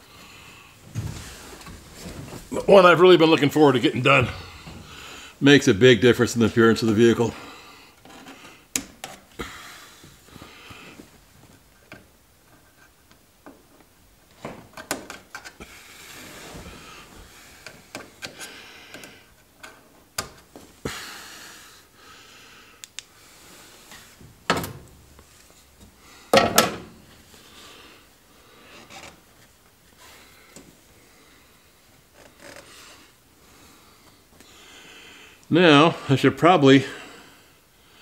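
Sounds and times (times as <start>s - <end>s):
fabric rustling: 0.8s - 5.2s.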